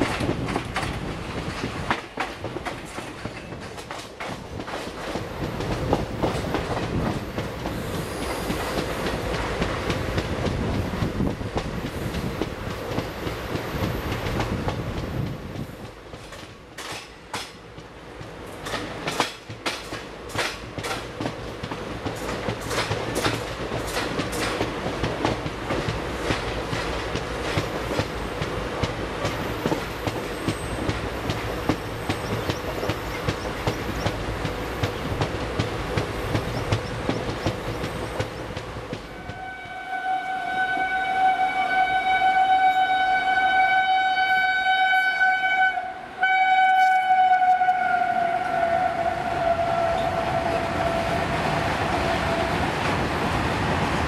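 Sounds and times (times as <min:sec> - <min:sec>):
train wheels clicking over rail joints: 0:00.0 - 0:39.6
electric locomotive horn: 0:39.1 - 0:52.8.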